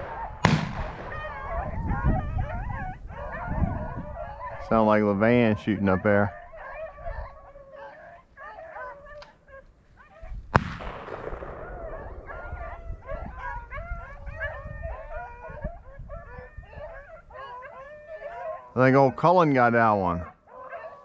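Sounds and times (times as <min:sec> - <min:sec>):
dogs baying and yipping: 0:00.0 - 0:00.4, 0:01.0 - 0:10.4, 0:11.6 - 0:21.0
shotgun shot echoing: 0:00.0 - 0:01.4, 0:10.5 - 0:12.4.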